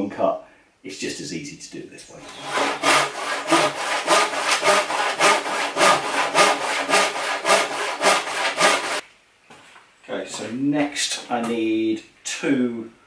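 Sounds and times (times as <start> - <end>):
hand saw cutting timber: 2.2 - 9.0.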